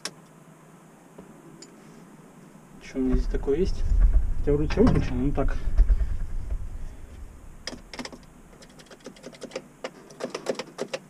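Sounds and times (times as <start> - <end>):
low rumble: 2.3 - 8.6.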